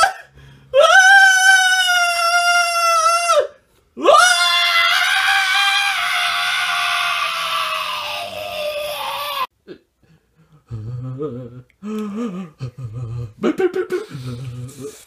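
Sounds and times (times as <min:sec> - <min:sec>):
whimpering moans and sobbing: 0:10.4 - 0:15.0.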